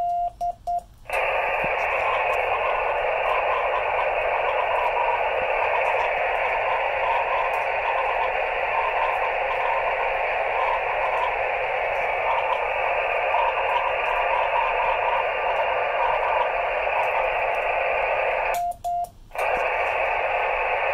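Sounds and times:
faint morse code tone: 0.0s - 19.2s
radio receiver hiss: 0.9s - 20.9s.

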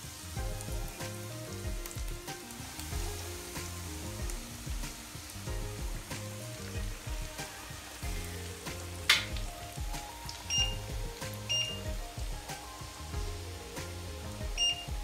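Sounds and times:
background music: 0.0s - 15.0s
chicken sizzling in oil: 0.0s - 15.0s
short high beeps: 10.5s - 10.8s, 11.5s - 11.8s, 14.6s - 14.8s.

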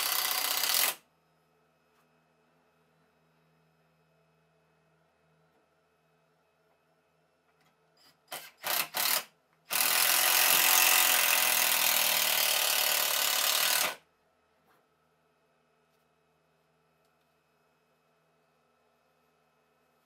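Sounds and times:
cordless drill drilling into wood: 0.0s - 1.0s, 8.3s - 14.0s.

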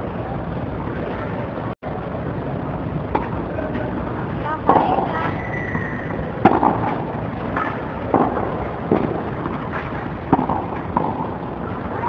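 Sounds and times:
steady background noise: 0.0s - 12.0s
tennis balls struck by rackets: 3.1s - 3.9s, 4.6s - 12.0s
balls bouncing on clay court: 4.6s - 12.0s.

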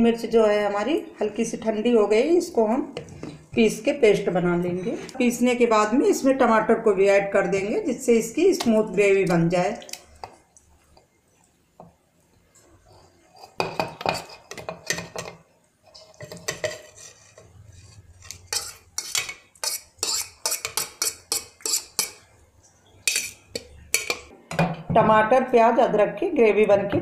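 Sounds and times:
spoon scraping metal bowl: 12.6s - 22.3s, 23.0s - 24.3s.

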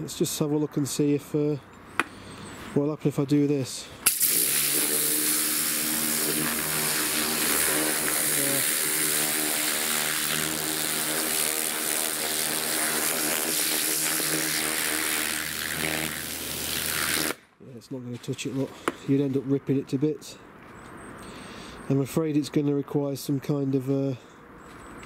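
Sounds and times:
pressure washer pump hum: 4.0s - 17.4s
water jet hissing: 4.0s - 17.4s.

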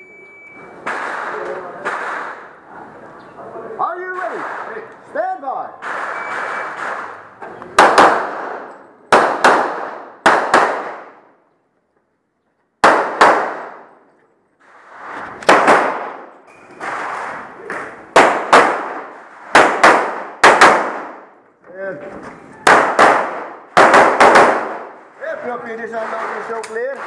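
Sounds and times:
pistol shots with ringing echo: 0.8s - 2.6s, 4.1s - 4.9s, 5.8s - 11.4s, 12.8s - 14.0s, 15.4s - 21.4s, 22.6s - 25.0s.

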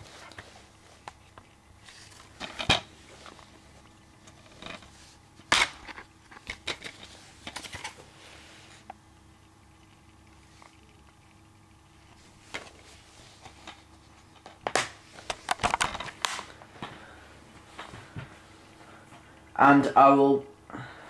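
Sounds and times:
plastic case rustling and clicking: 14.4s - 16.5s.

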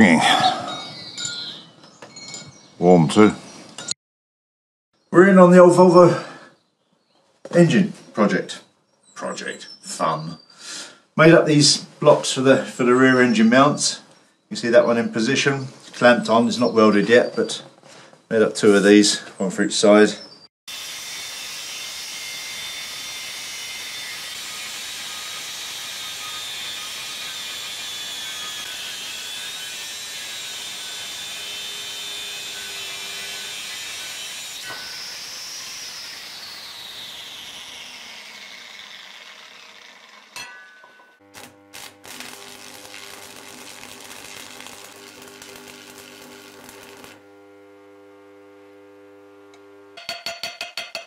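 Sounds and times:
angle grinder cutting steel: 20.7s - 47.4s
steady hum: 41.2s - 50.0s.

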